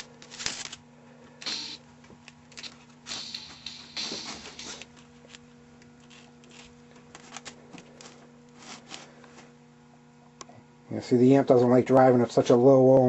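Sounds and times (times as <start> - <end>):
faint electrical hum: 0.0 - 13.0
handling clicks and rustles: 4.3 - 9.4.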